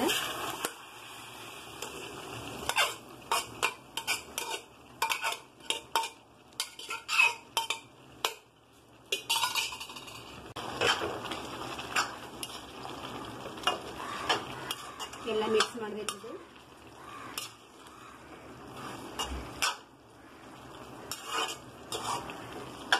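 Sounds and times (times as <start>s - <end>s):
faint sizzle: 0.0s - 22.9s
spatula scraping metal pan: 2.6s - 8.4s, 9.1s - 11.2s, 14.2s - 16.3s, 21.0s - 22.9s.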